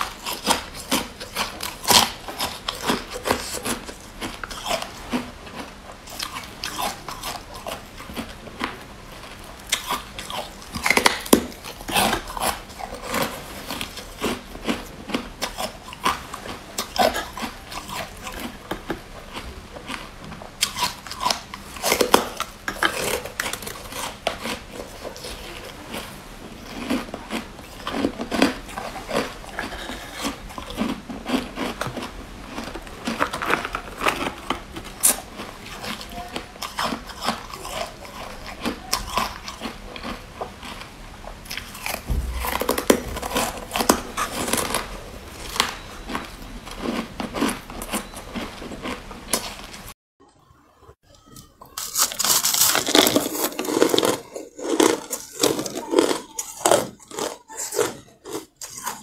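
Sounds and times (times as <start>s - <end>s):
ice crunching between teeth: 0.0s - 8.8s, 9.6s - 49.8s, 51.7s - 59.0s.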